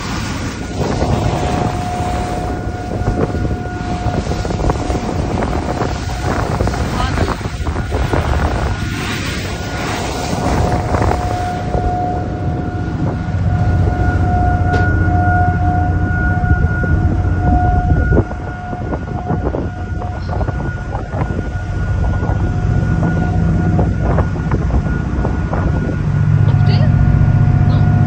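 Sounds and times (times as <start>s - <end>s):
ferry machinery low drone: 0.0s - 28.0s
high machine whine: 0.0s - 28.0s.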